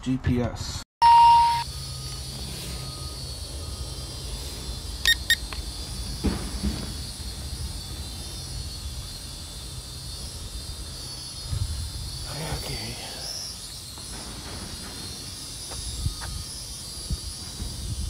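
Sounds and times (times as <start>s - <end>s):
wind: 0.0s - 18.0s
short high beeps: 1.0s - 1.7s, 5.0s - 5.5s
loud electronic beep: 1.0s - 6.2s.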